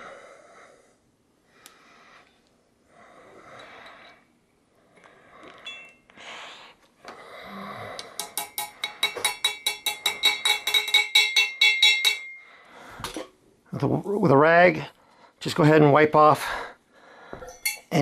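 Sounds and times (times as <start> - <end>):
hammer tapping on metal: 8.2 - 12.4.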